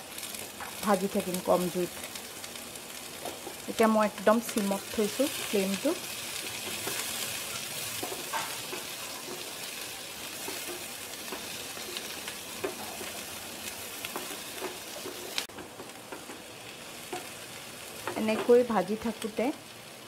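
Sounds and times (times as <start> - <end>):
onions sizzling in oil: 0.0 - 20.0
spatula scraping a pan: 5.3 - 15.5.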